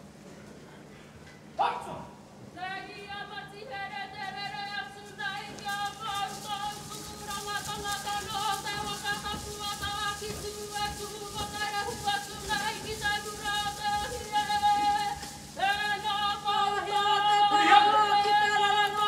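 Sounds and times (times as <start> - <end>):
group singing long held notes: 3.4 - 19.0.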